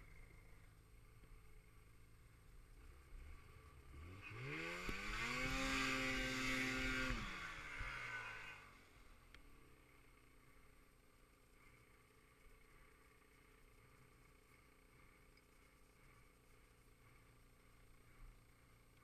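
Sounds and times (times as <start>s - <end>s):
snowmobile engine revving: 2.8s - 9.0s.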